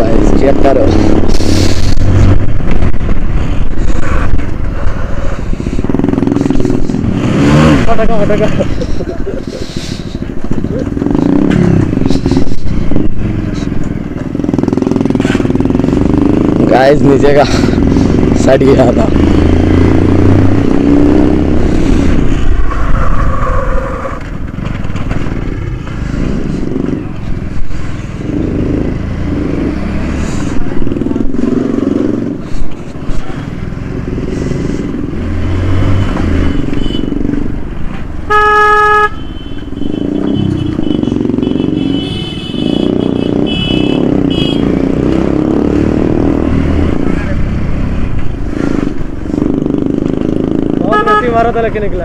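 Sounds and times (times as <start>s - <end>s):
motorcycle engine running: 10.1s - 22.4s, 39.2s - 51.6s
vehicle horn: 36.5s - 37.1s, 38.3s - 44.7s, 50.9s - 51.5s.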